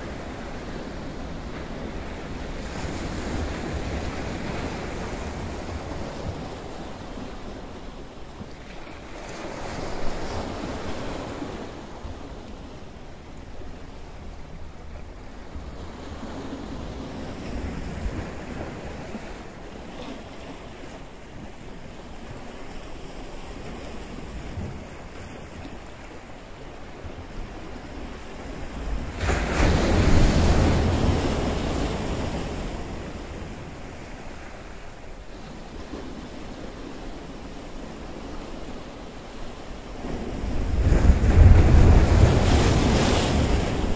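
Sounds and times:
sea surf washing: 38.0 - 43.9.

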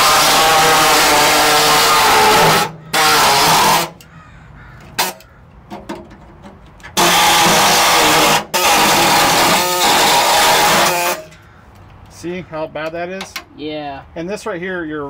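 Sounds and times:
air saw cutting sheet metal: 0.0 - 4.0, 7.0 - 11.4.

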